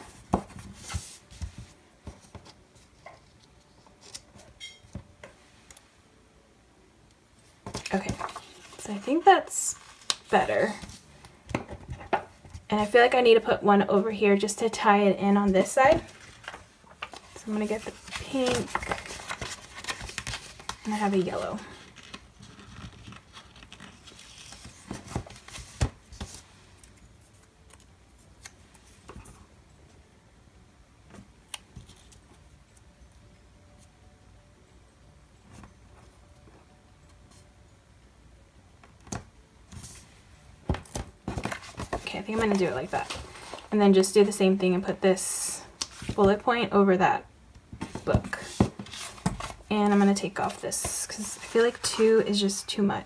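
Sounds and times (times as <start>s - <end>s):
paper rustling: 7.6s - 11.1s, 15.5s - 29.4s, 40.9s - 43.7s, 47.8s - 52.5s.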